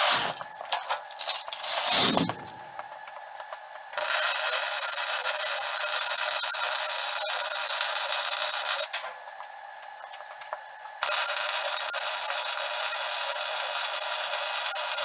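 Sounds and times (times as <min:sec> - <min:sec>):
arc welding crackling hiss: 0:04.0 - 0:09.0, 0:11.1 - 0:15.0.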